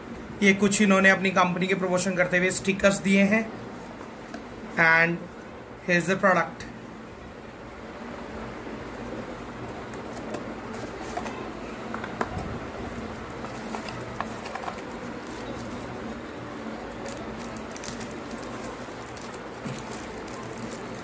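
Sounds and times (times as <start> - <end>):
paper wrapper crinkling: 12.9 - 21.0.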